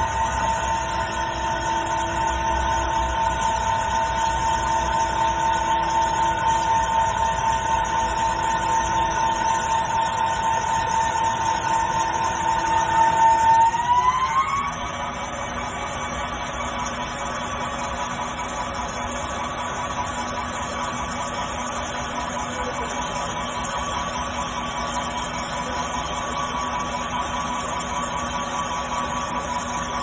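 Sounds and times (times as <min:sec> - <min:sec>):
lathe high whine: 0:00.0 - 0:30.0.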